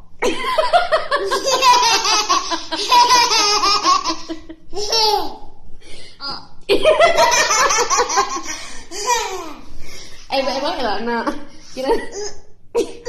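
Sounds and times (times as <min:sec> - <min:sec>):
toddler girl laughing: 0:01.2 - 0:05.5.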